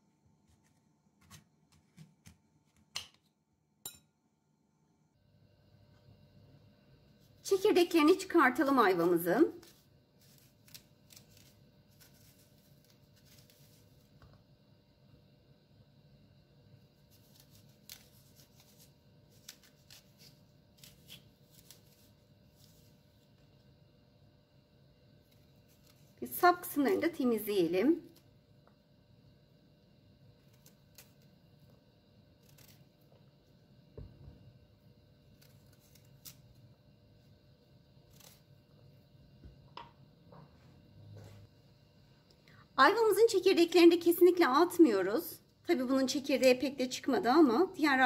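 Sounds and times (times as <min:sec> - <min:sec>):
knife scraping fruit: 0:09.6 - 0:14.0, 0:17.0 - 0:22.9, 0:32.4 - 0:33.0, 0:35.3 - 0:36.6.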